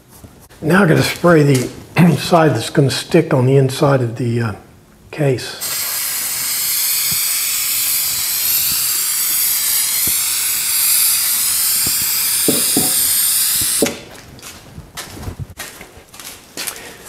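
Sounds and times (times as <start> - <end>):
aerosol can spraying: 5.6 - 14.0.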